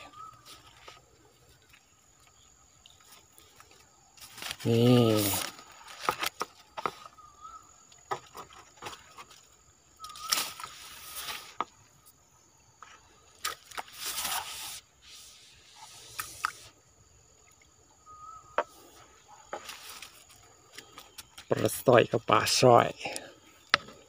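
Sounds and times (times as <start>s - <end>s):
high insect whine: 0.0s - 24.0s
water splashing and sloshing: 5.2s - 21.7s.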